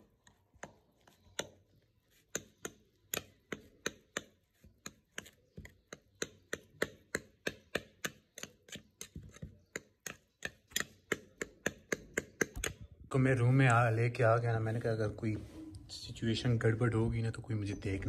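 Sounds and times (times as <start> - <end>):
metal spoon mashing cake: 0.0 - 14.4.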